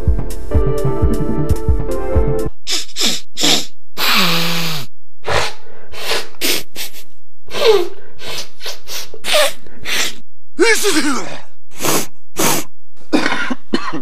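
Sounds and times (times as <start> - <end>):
person sneezing: 2.7 - 10.2.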